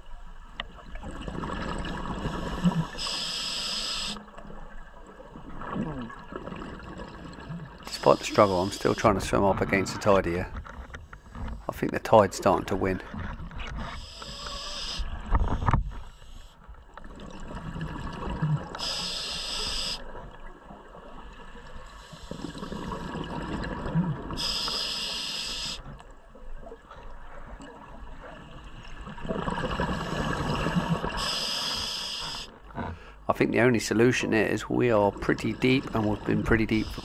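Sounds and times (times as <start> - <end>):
regulator hissing inhalation: 2.3 - 4.2, 7.9 - 9.1, 14.0 - 15.1, 18.8 - 20.0, 24.4 - 25.8, 29.9 - 33.2, 36.7 - 37.0
bubbling exhaled air: 29.2 - 33.2.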